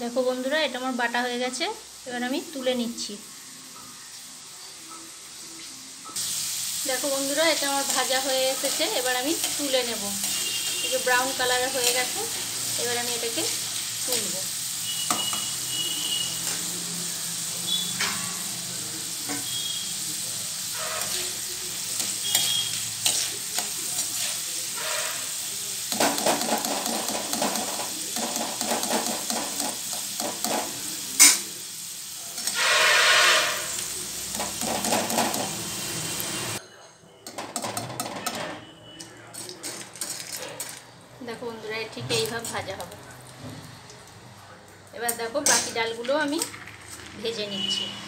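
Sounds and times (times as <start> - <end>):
food deep-frying in oil: 0.0 - 36.6.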